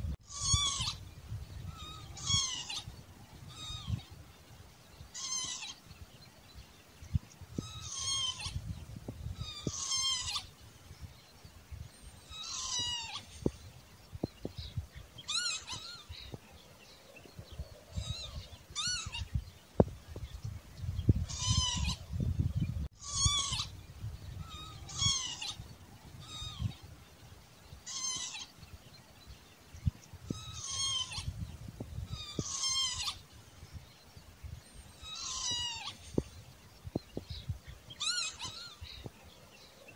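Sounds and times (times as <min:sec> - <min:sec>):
lapwing mewing call: 0:00.3 - 0:01.0, 0:01.6 - 0:04.1, 0:05.1 - 0:05.8, 0:07.6 - 0:08.6, 0:09.4 - 0:10.5, 0:12.3 - 0:13.5, 0:15.2 - 0:16.2, 0:17.9 - 0:19.3, 0:21.3 - 0:22.0, 0:23.0 - 0:23.7, 0:24.4 - 0:26.8, 0:27.8 - 0:28.6, 0:30.3 - 0:31.4, 0:32.1 - 0:33.3, 0:35.0 - 0:36.3, 0:37.9 - 0:39.0.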